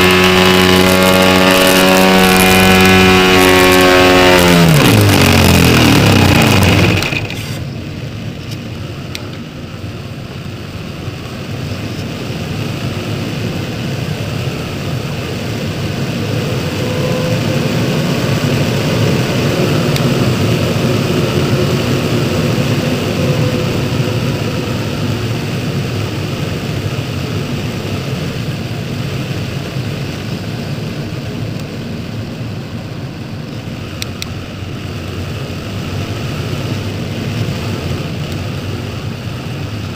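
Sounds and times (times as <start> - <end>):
model plane engine dying: 0.0 - 7.8, 13.4 - 28.5
airflow rushing: 0.0 - 39.9.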